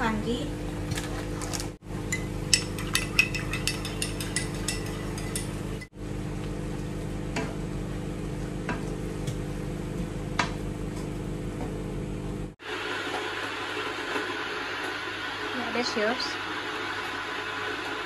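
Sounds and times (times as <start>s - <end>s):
spoon clinking against a cup: 2.1s - 5.6s
wooden spatula stirring and tapping: 2.5s - 5.6s.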